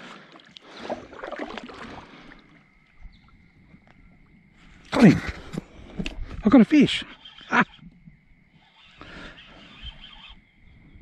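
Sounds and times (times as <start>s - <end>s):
paddle splashing in water: 0.0s - 3.2s.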